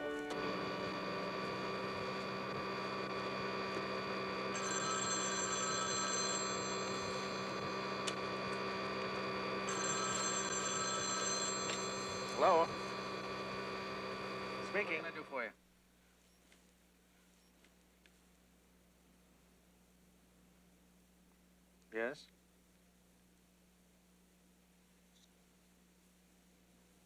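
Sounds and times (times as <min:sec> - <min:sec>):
desk telephone ringing: 0:00.0 - 0:15.3
electric motor hum: 0:00.0 - 0:15.5.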